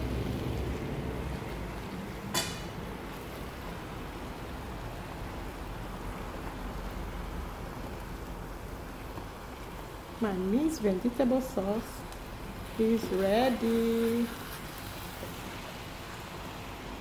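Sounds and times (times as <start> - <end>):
cooking hiss: 0.0 - 17.0
wooden spoon stirring in pan: 4.9 - 16.9.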